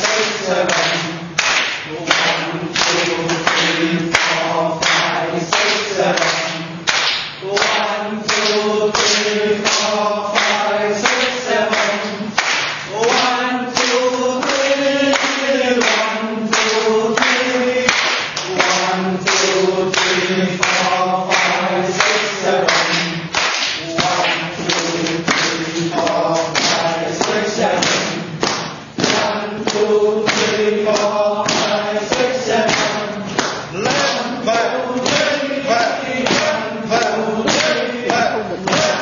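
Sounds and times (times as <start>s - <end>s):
people clapping in rhythm: 0.0s - 39.0s
voices chanting together: 0.0s - 39.0s.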